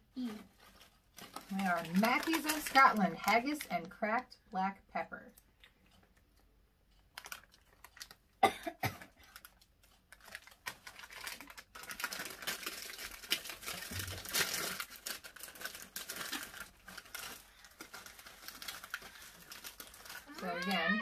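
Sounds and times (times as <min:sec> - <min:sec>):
crisp packet crinkling: 0:00.2 - 0:04.0, 0:07.1 - 0:08.4, 0:09.1 - 0:21.0
crisp packet snapping: 0:01.2 - 0:02.8, 0:07.2 - 0:08.2, 0:09.2 - 0:20.8.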